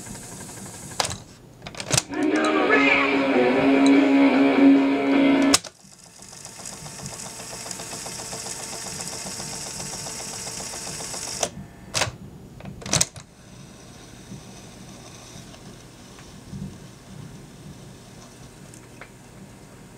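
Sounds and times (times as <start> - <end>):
quiet mechanical hum: 0.0 - 2.1, 5.6 - 19.9
recording through small speaker: 2.0 - 5.6
cassette motor whirring: 5.4 - 12.2.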